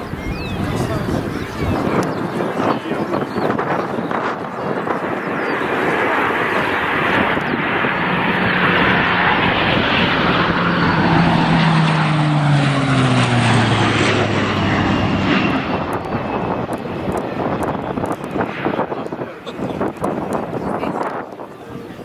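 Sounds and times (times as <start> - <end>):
airliner engines and propellers droning: 0.0 - 22.0.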